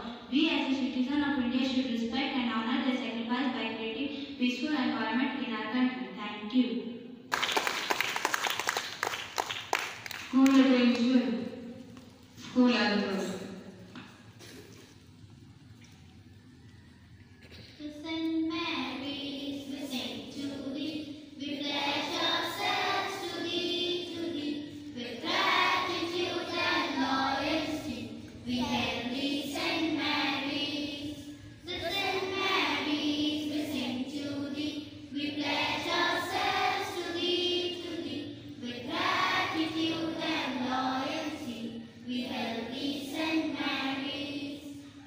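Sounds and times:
children singing together: 0:18.7 - 0:45.0.

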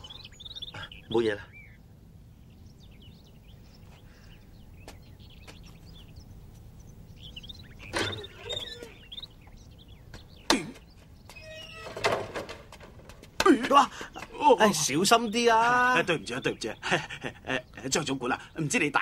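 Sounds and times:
faint bird chirps: 0:00.0 - 0:12.0
wooden door swinging open: 0:11.3 - 0:13.2.

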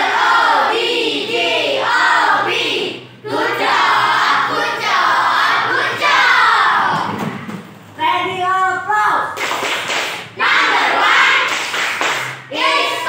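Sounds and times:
children singing together: 0:00.0 - 0:07.2, 0:12.5 - 0:13.0.

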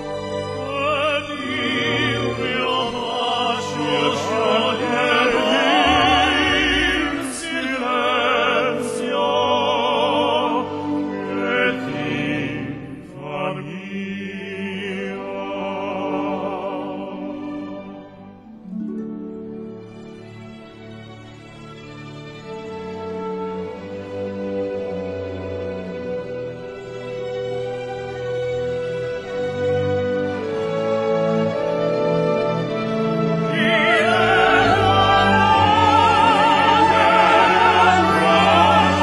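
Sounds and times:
operatic singing with instruments: 0:00.0 - 0:18.5, 0:22.9 - 0:39.0.

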